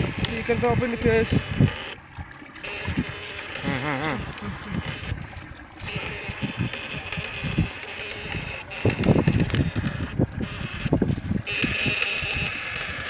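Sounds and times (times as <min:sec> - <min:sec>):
wind buffeting microphone: 0:00.0 - 0:13.0
wavering vocal hum: 0:02.8 - 0:07.1.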